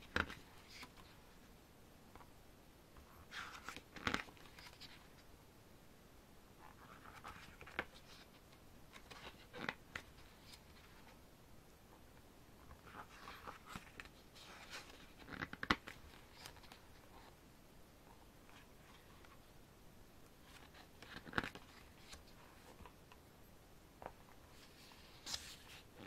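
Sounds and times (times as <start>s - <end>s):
pages turning: 3.3s - 5.2s, 6.8s - 11.2s, 12.7s - 17.0s, 20.4s - 23.0s, 24.0s - 26.0s.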